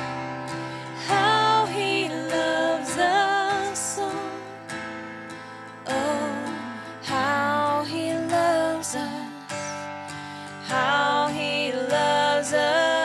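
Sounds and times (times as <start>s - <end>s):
person singing: 0.0s - 4.7s, 5.7s - 13.0s
strummed acoustic guitar: 0.0s - 13.0s.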